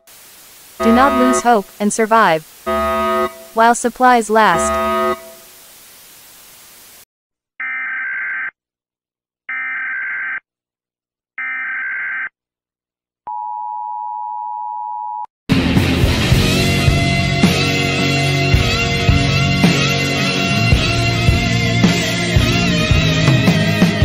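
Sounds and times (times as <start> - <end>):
two-tone attention signal: 0.8 - 5.4
buzzy digital data tones: 0.8 - 5.6
music: 15.5 - 24.0.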